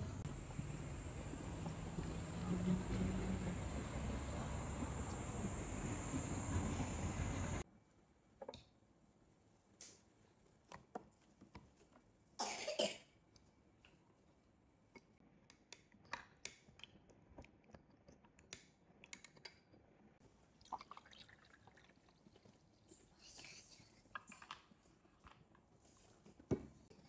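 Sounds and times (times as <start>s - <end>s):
carbonated water pouring: 20.6s - 22.9s.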